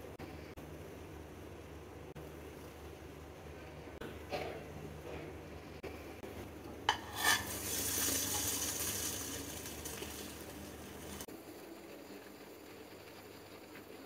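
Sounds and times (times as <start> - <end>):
sandwich sizzling in hot pan: 6.9 - 14.0.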